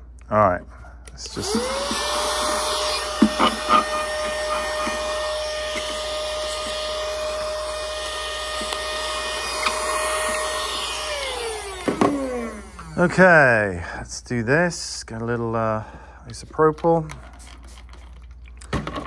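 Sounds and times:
electric air duster whining: 1.2s - 13.2s.

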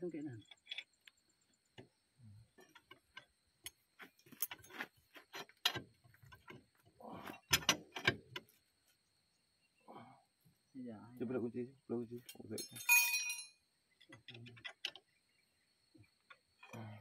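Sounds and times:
tools clinking against steel: 12.2s - 13.6s.

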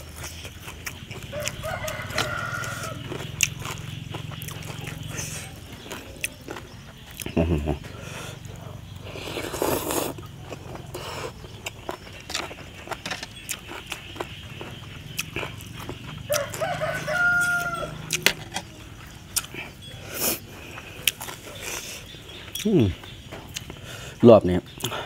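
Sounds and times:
rooster crowing: 1.2s - 3.4s, 16.1s - 18.2s
noodle slurp: 9.1s - 10.2s.

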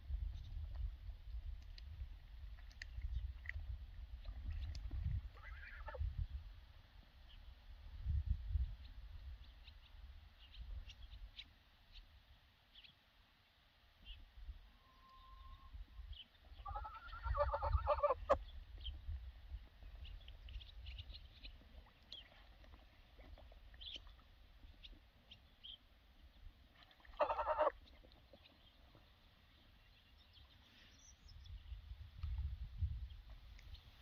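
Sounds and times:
geese calling: 16.6s - 18.4s, 27.1s - 27.8s.

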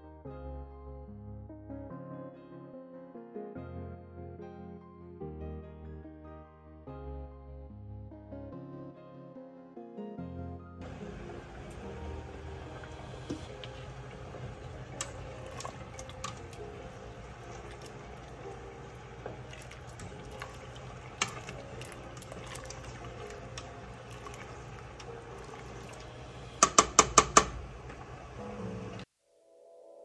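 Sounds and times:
water boiling: 10.8s - 29.1s
utensil tapping metal pot: 26.6s - 27.6s.

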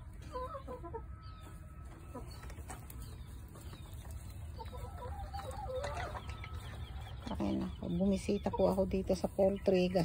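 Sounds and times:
hens clucking: 0.0s - 10.0s.

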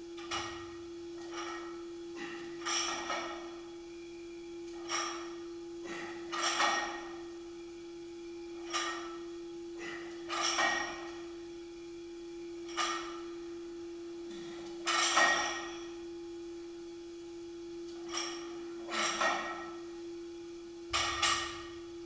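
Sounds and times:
steady low hum: 0.0s - 22.0s
barbell plates clanking and rattling: 0.2s - 3.6s, 4.7s - 7.3s, 8.6s - 9.2s, 9.8s - 11.3s, 12.6s - 13.5s, 14.3s - 15.9s, 17.9s - 19.9s, 20.9s - 21.8s.

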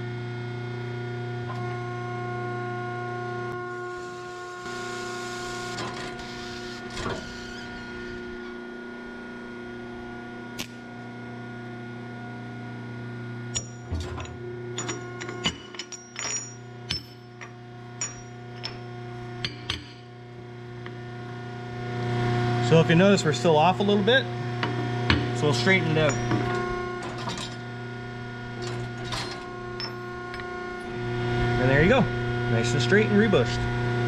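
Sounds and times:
electric hum: 0.0s - 34.0s
metal clinks and knocks: 13.6s - 20.1s, 26.0s - 27.6s, 28.6s - 30.5s.

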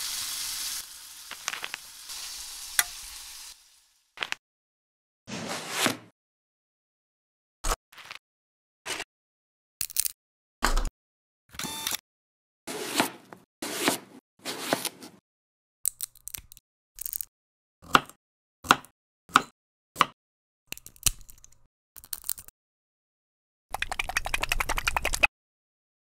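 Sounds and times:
sharp taps and plops: 23.8s - 25.3s.

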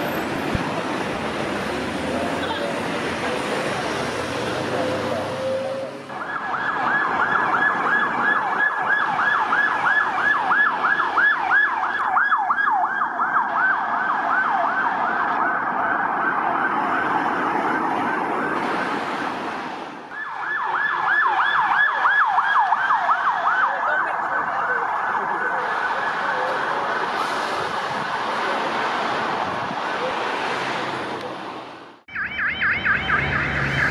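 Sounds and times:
police siren yelping: 4.7s - 19.4s, 20.1s - 27.2s, 32.1s - 33.9s.

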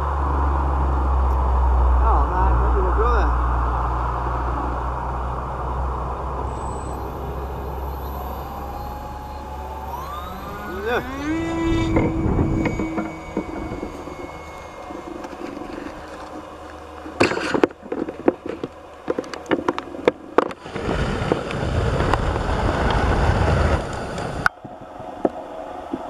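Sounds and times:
rushing noise: 0.0s - 17.9s
electric motors and propellers whining: 0.0s - 26.0s.

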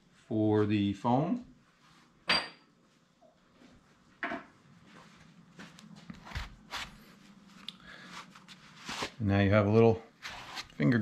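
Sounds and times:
glove handling scuffs: 5.6s - 7.0s.

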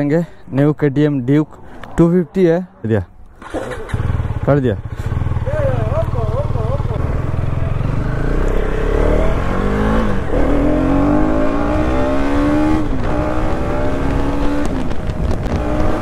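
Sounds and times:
motorcycle engine accelerating: 3.2s - 16.0s.

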